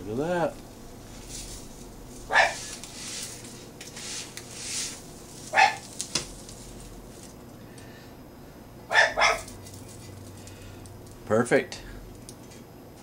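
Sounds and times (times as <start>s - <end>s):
dog barking: 2.3s - 2.7s, 5.5s - 5.9s, 8.9s - 9.5s.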